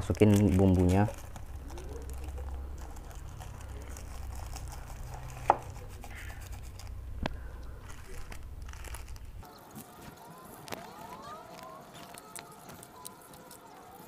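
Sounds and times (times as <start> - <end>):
steady low hum: 0.0 - 9.7
plastic sachets crinkling and tearing: 0.0 - 14.0.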